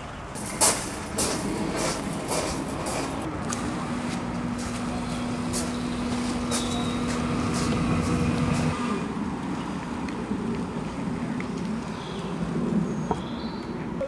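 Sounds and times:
motor humming: 0:00.4 - 0:09.2.

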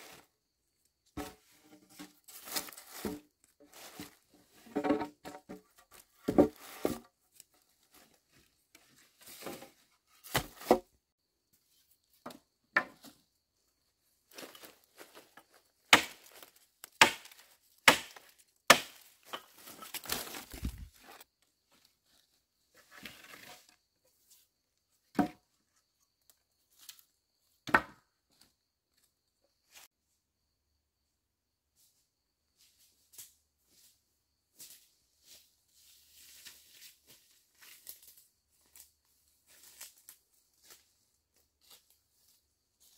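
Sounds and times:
dry leaves crunching underfoot: 0:02.2 - 0:04.3, 0:19.0 - 0:21.2
wooden sticks knocking and cracking: 0:15.9 - 0:20.9.

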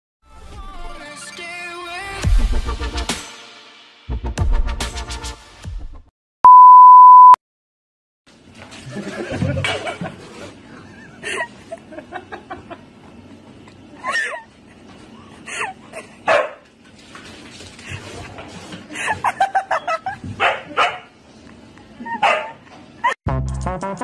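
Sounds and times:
dog barking and yipping: 0:16.3 - 0:16.6, 0:20.4 - 0:21.1, 0:22.1 - 0:22.6.

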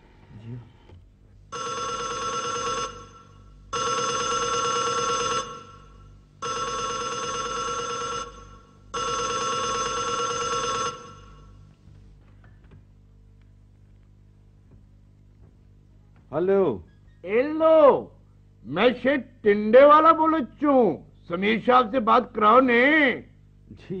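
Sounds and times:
desk telephone ringing: 0:01.5 - 0:11.6.

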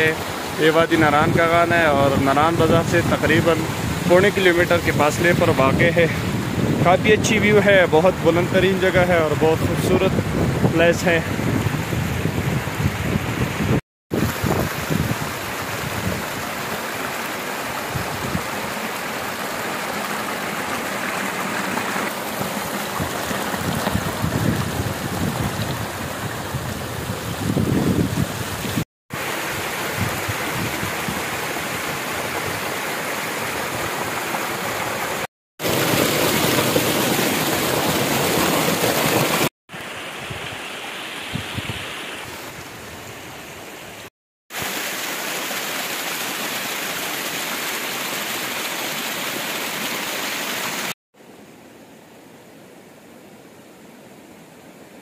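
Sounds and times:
waterfall rushing over rocks: 0:00.0 - 0:06.4, 0:14.1 - 0:42.6, 0:44.5 - 0:51.0.

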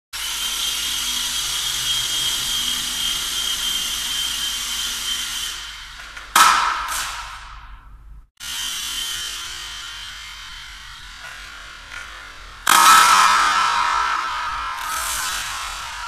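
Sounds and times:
small rotor motors whining: 0:00.2 - 0:06.0.

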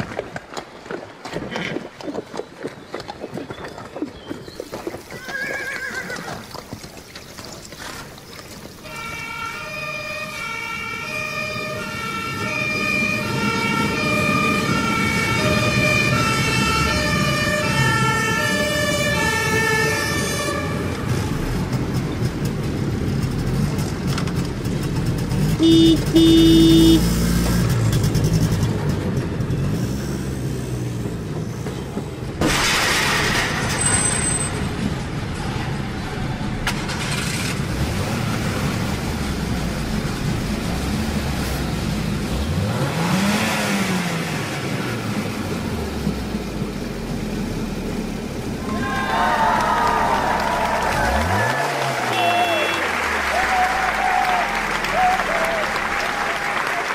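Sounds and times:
truck engine rumble: 0:05.3 - 0:56.9
two-tone siren: 0:08.8 - 0:21.2, 0:25.6 - 0:27.2, 0:52.1 - 0:53.0
horn blasts: 0:08.8 - 0:21.6, 0:25.6 - 0:27.4, 0:51.0 - 0:55.4.

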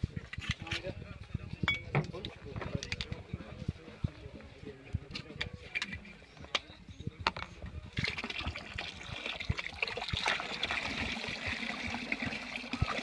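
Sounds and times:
liquid trickling into bucket: 0:08.0 - 0:13.0.

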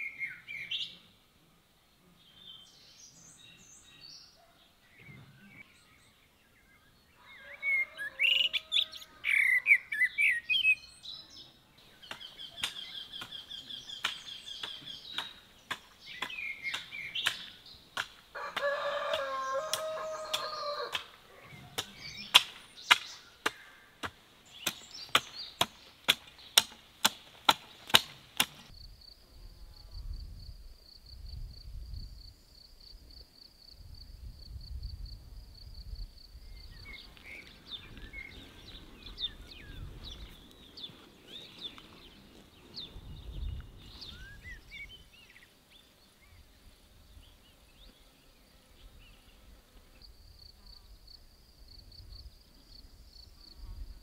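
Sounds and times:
birds chirping: 0:02.1 - 0:28.7, 0:36.2 - 0:49.5
rooster crowing: 0:07.2 - 0:09.2, 0:18.3 - 0:21.1
hoe chopping into soil: 0:14.0 - 0:28.7
low wind rumble: 0:28.8 - 0:32.4, 0:33.8 - 0:45.2.

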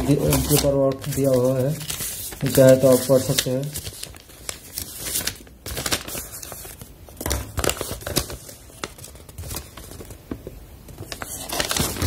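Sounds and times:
paper rustling and crinkling: 0:00.0 - 0:12.0.

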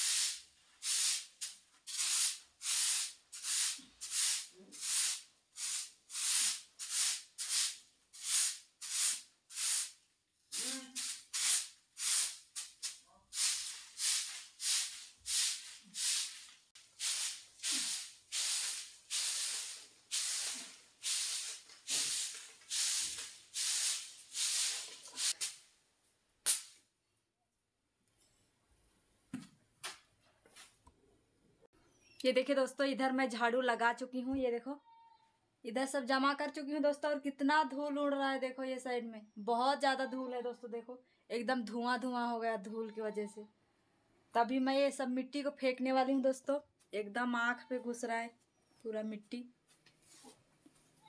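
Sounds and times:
broom sweeping dusty floor: 0:00.0 - 0:10.0, 0:10.6 - 0:25.7.

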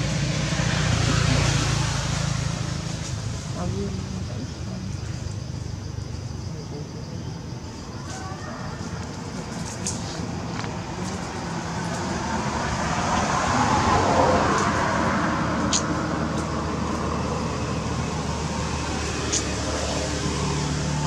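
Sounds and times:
vehicle passing by: 0:00.0 - 0:05.0, 0:09.4 - 0:21.0.

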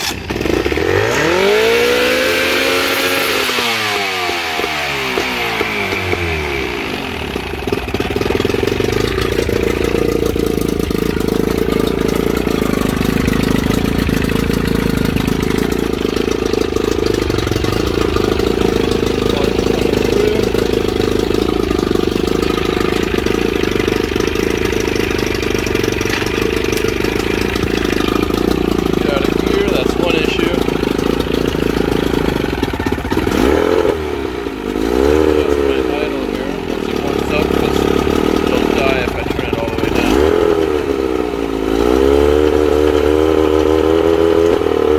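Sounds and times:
outboard motor running: 0:00.0 - 0:44.9.

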